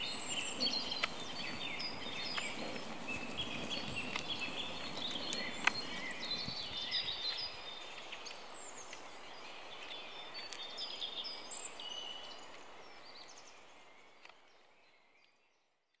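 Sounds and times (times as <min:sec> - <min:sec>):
sharp crackles: 0:00.0 - 0:06.6
faint background hiss: 0:00.0 - 0:15.9
small birds chirping: 0:00.0 - 0:16.0.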